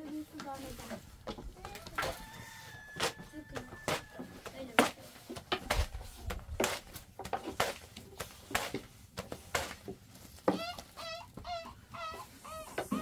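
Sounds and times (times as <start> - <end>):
chicken calling: 10.9 - 13.0.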